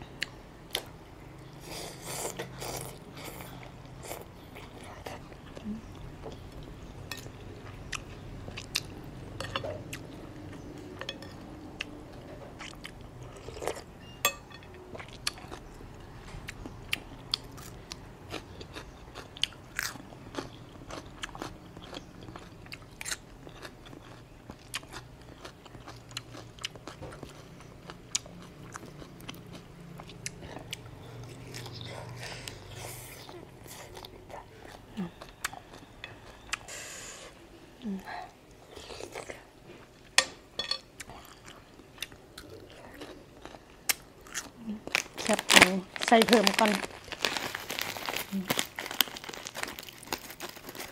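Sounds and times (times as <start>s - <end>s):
faint low hum: 0.0s - 50.9s
biting chewing and crunching: 14.8s - 36.7s.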